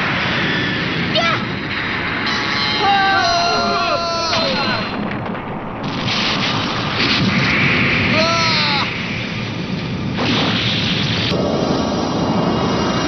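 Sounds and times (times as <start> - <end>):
cartoon blasts and impacts: 4.3 - 13.0.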